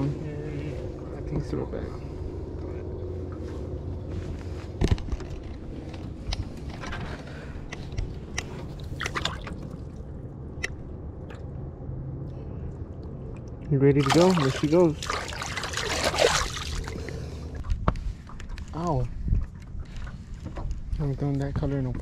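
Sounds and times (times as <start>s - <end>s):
steady low hum: 0.0s - 22.0s
water sloshing and dripping: 8.3s - 11.8s, 12.4s - 18.5s.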